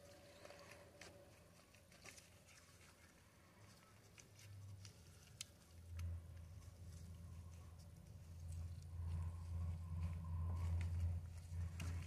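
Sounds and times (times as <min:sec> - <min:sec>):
low hum: 0:05.7 - 0:12.0.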